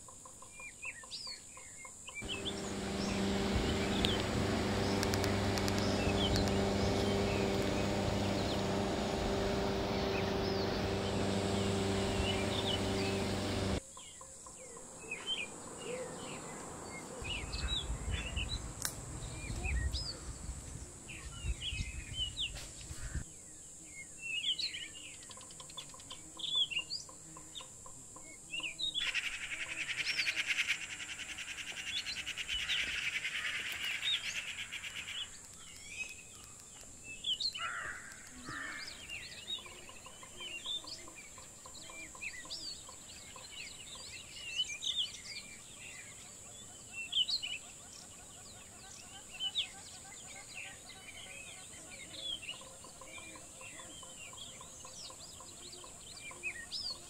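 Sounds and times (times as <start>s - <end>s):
birds chirping and calling: 0.6s - 23.2s
dense buzzing chorus: 2.2s - 13.8s, 15.4s - 21.2s
low rumble: 17.2s - 22.6s.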